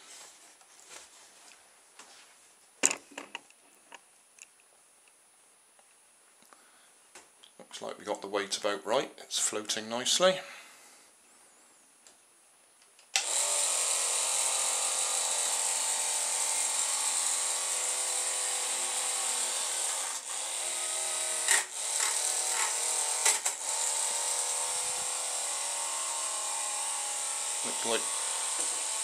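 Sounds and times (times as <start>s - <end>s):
electric fan motor whirring: 13.2s - 29.0s.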